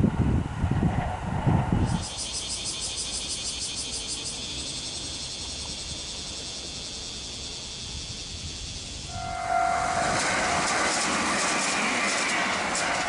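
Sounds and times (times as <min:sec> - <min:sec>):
passing train: 0:00.0 - 0:13.0
insects trilling: 0:01.8 - 0:13.0
steady tone: 0:09.1 - 0:13.0.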